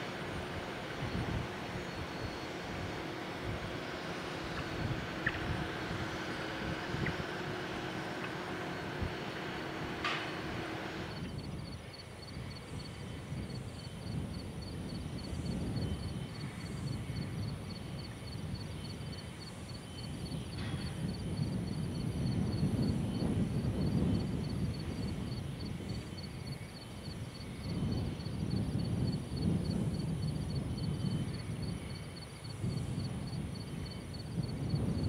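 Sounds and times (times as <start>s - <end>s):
low rumbling noise: 0.0s - 12.5s.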